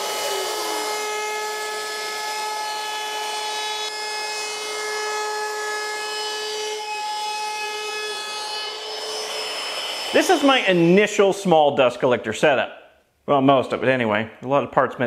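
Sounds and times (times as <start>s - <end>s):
router motor whine: 0.0s - 11.0s
router bit hissing in wood: 5.8s - 11.4s.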